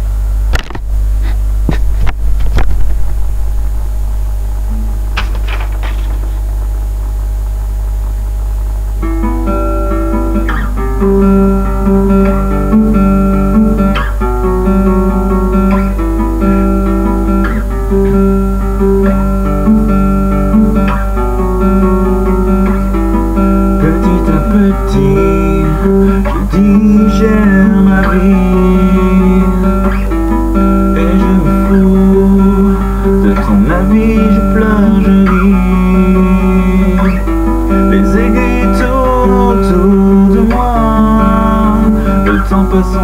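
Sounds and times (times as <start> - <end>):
acoustic guitar chords: 0.0 - 43.0
steady low hum: 0.0 - 43.0
soft guitar string clicks: 0.5 - 3.2.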